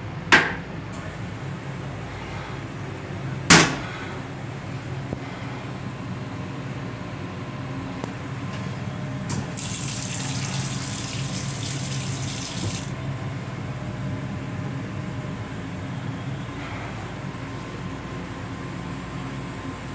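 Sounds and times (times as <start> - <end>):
faucet running into sink: 9.4 - 12.9.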